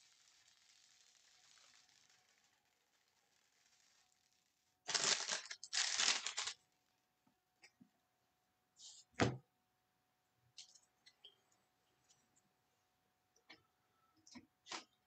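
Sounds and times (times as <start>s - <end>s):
plastic wrapper crinkling: 4.8s - 6.7s.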